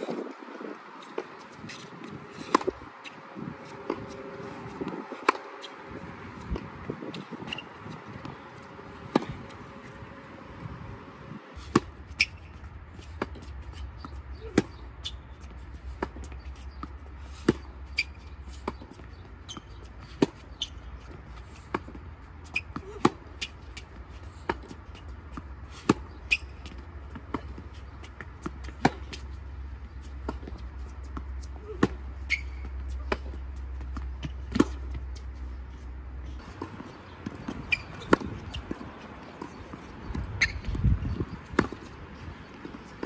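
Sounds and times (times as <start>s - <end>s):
tennis ball bouncing on court: 1.0s - 11.1s, 11.7s - 43.0s
tennis ball hitting racket: 1.0s - 35.5s, 36.4s - 43.0s.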